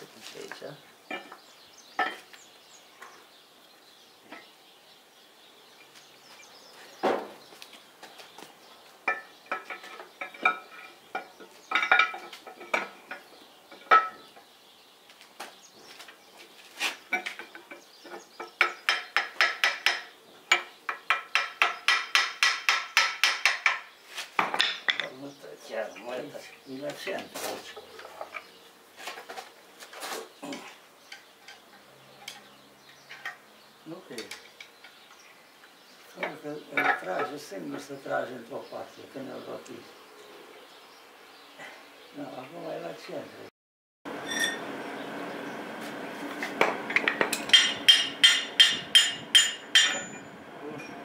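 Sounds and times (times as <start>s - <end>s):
hammer striking metal: 46.6s - 51.0s.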